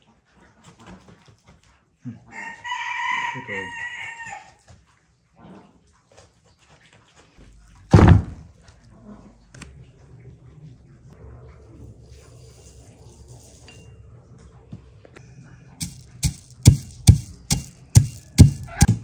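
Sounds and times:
rooster crowing: 0:02.3 - 0:04.6
loud sharp thump: 0:07.9 - 0:08.5.

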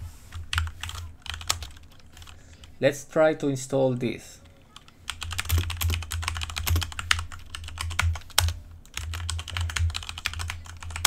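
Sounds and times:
fast typing on keyboard: 0:00.4 - 0:02.4, 0:04.7 - 0:11.0.

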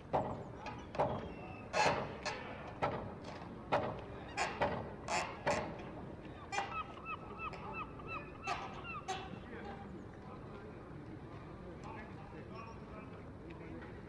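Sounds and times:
waterbirds calling: 0:00.2 - 0:02.7, 0:04.1 - 0:10.2.

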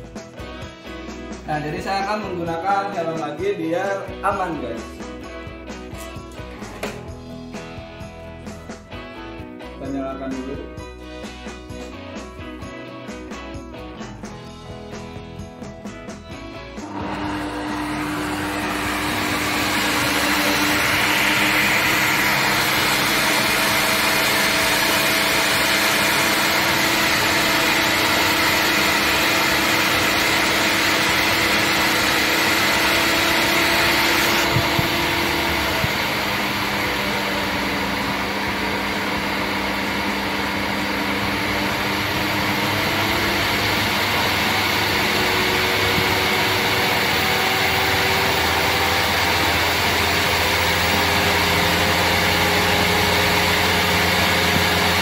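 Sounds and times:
table saw motor running: 0:16.8 - 0:55.0.

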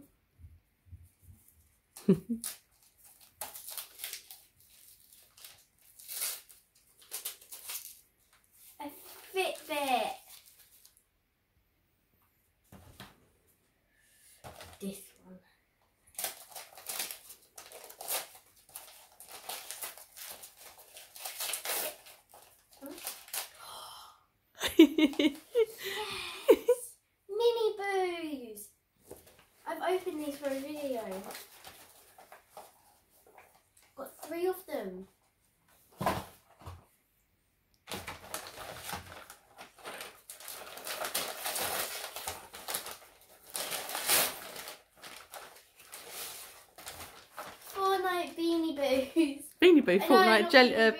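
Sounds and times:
wrapping paper crinkling and tearing: 0:02.3 - 0:11.0, 0:16.1 - 0:23.6, 0:29.3 - 0:34.4, 0:37.9 - 0:48.7.

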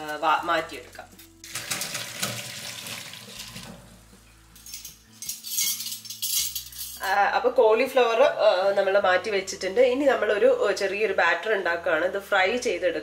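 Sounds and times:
water splashing into a strainer: 0:01.4 - 0:03.8
pot and strainer clinking: 0:04.6 - 0:07.0.

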